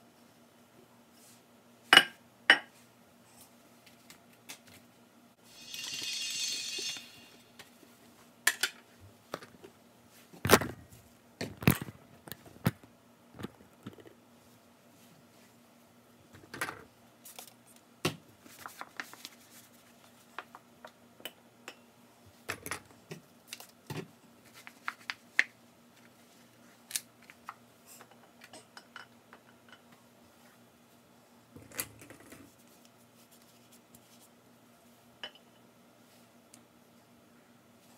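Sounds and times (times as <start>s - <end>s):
faint steady hum: 0.0s - 37.9s.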